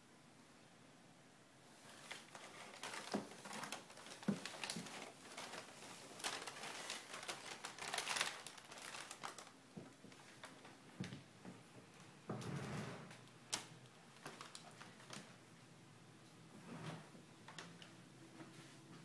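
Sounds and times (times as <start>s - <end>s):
packing paper crinkling: 1.8s - 10.8s, 13.5s - 15.4s.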